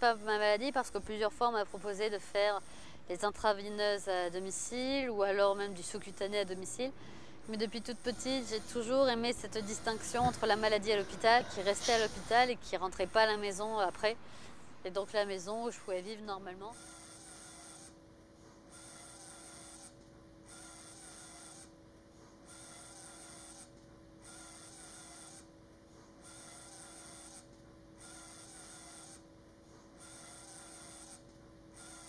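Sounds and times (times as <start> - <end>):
low steady hum: 0.0 - 26.8
faint rhythmic hissing pulses: 0.0 - 32.0.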